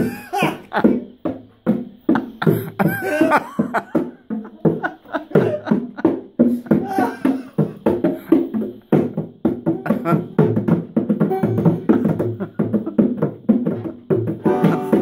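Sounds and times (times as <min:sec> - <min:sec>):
bongos played by hand: 0:00.0 - 0:15.0
banjo: 0:09.7 - 0:15.0.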